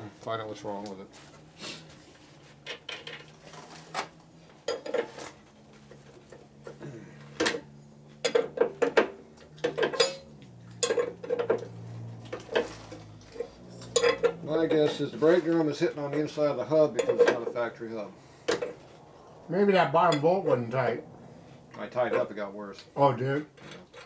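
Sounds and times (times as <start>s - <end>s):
hand tools clinking on metal: 8.2s - 17.7s.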